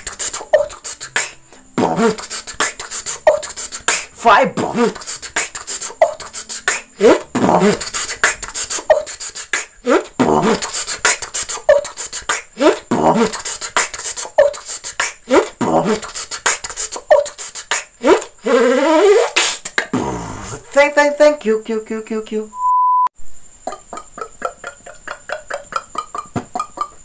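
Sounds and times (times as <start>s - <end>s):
person beatboxing: 0.0s - 20.6s.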